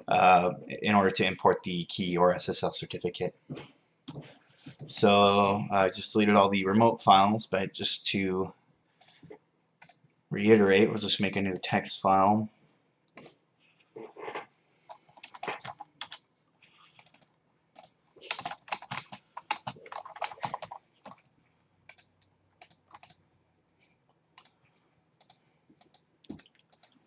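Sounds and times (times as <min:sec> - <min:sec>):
typing on a computer keyboard: 0:09.8 - 0:10.0, 0:13.2 - 0:13.4, 0:14.9 - 0:16.2, 0:16.8 - 0:21.2, 0:21.9 - 0:23.2, 0:24.4 - 0:24.6, 0:25.2 - 0:27.0.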